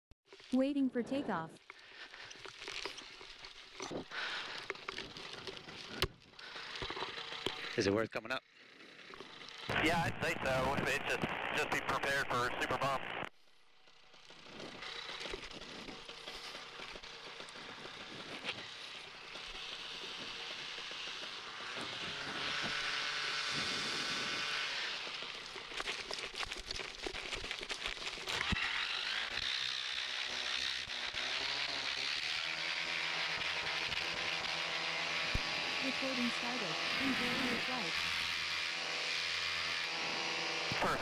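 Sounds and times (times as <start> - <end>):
paramotor engine revving: 14.2 - 26.5, 28.2 - 41.0.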